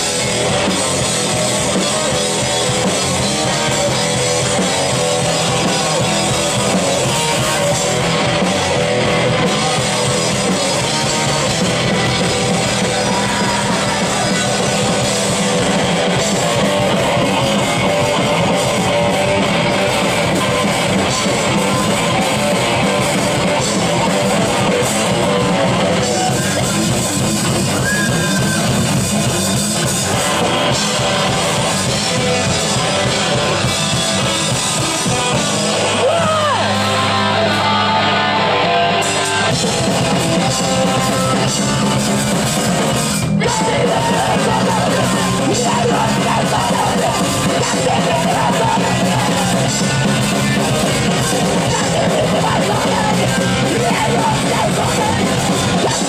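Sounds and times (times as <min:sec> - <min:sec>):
bass: 0:00.0 - 0:56.0
distorted electric guitars: 0:00.0 - 0:56.0
drum kit: 0:00.0 - 0:56.0
person shouting vocals: 0:35.9 - 0:36.8.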